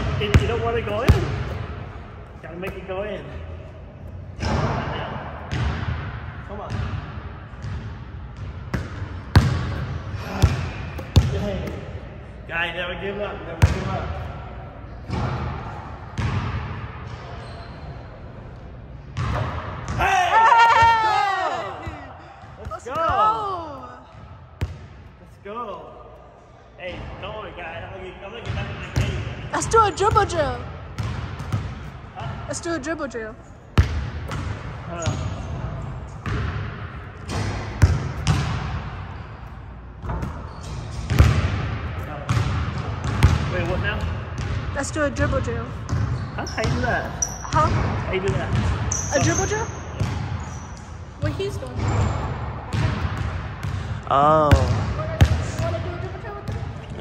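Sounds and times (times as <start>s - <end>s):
basketball bouncing in gym: 0.0s - 12.4s, 13.5s - 17.8s, 19.0s - 25.2s, 28.4s - 57.0s
basketball bouncing on hardwood: 8.7s - 11.8s, 37.3s - 38.7s, 42.3s - 43.5s.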